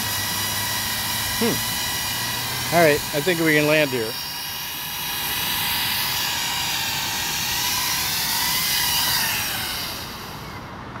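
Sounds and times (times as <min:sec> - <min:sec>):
drone propellers whining: 0:00.0 - 0:11.0.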